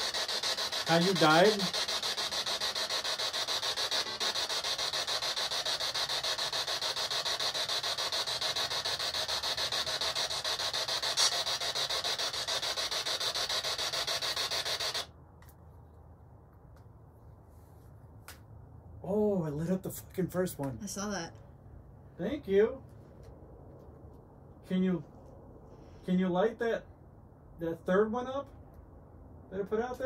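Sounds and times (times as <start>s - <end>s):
pulsing static hiss: 0.0s - 15.1s.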